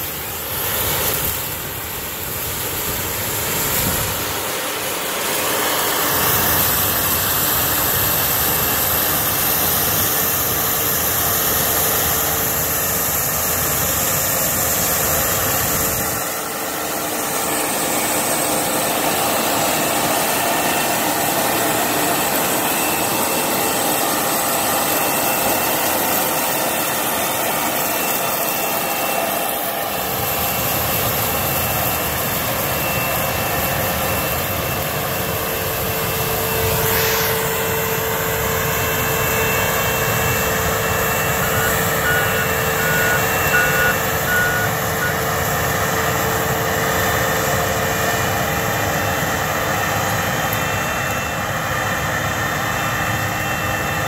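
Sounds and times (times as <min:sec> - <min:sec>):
diesel engine and fan roar: 0:00.0 - 0:54.0.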